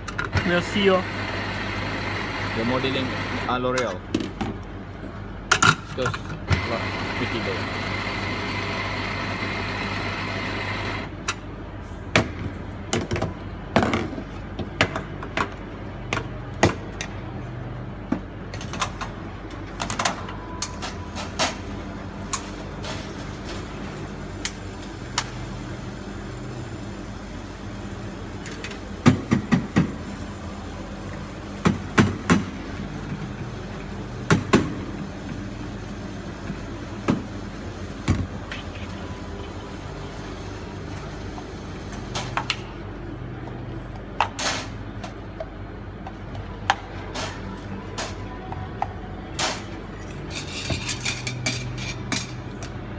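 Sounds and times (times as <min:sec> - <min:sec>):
espresso machine hum: 0:00.4 - 0:03.6, 0:06.5 - 0:11.1.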